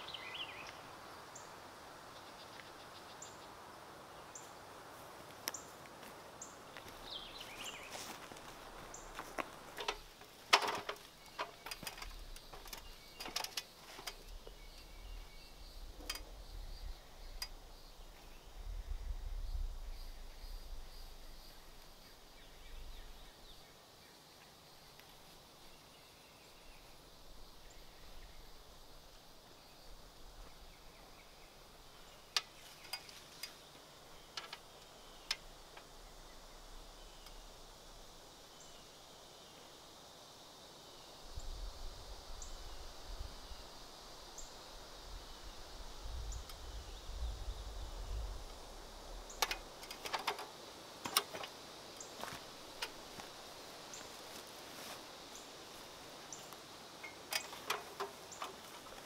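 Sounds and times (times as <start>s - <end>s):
low rumble: 18.4s - 21.4s.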